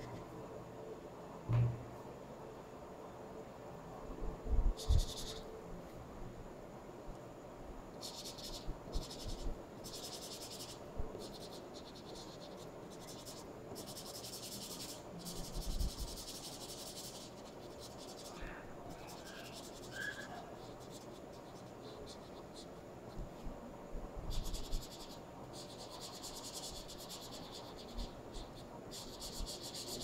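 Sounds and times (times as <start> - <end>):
soft thumps: 1.4 - 1.9
marker scratching on paper: 4.8 - 5.4, 8.0 - 23.2, 24.3 - 30.0.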